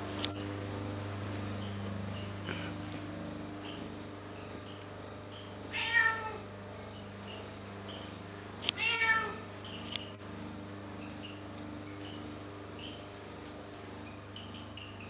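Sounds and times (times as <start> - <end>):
low steady hum: 0.0 - 15.0
cat meowing: 5.7 - 6.4, 8.8 - 9.4.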